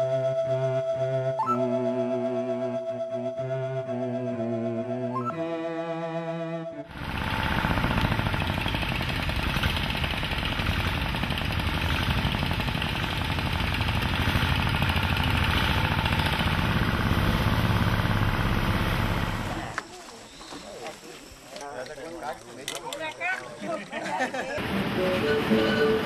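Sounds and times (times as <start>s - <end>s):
small engine running: 6.8s - 19.8s.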